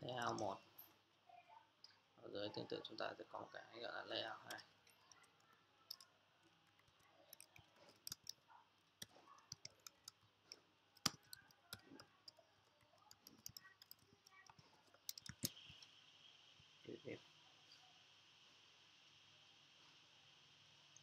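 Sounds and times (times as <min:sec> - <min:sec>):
keyboard key clicks: 0:06.8 - 0:08.4, 0:11.0 - 0:12.4, 0:13.1 - 0:15.8.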